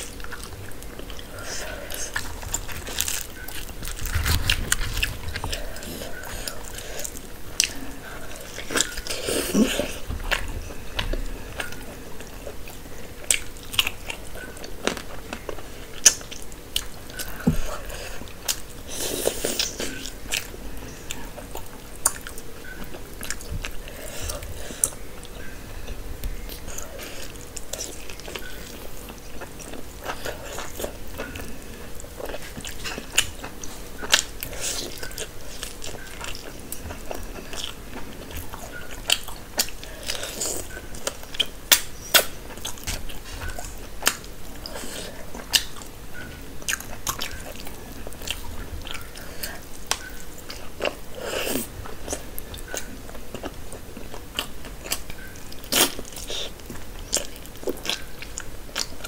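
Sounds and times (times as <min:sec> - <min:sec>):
person biting and wet chewing: 0:00.0 - 0:07.8.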